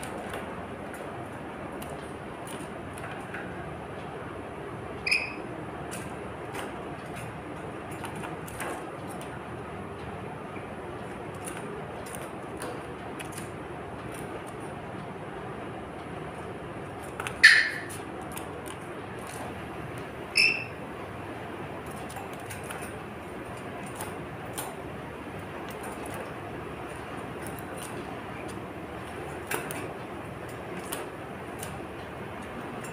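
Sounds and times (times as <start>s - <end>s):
bird clicking in wire cage: 11.3s - 14.7s, 25.6s - 31.8s
parrot screeching: 20.4s - 20.7s.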